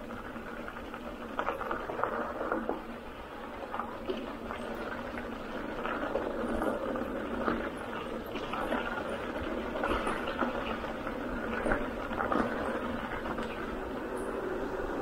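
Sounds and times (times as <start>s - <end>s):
bike tyres rolling on gravel: 0.0s - 15.0s.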